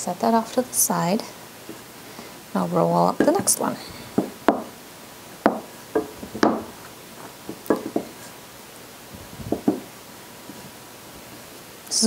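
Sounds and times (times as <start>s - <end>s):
rolling pin knocking on dough: 4.2s - 4.8s, 5.4s - 6.8s, 7.5s - 8.2s, 9.5s - 9.9s.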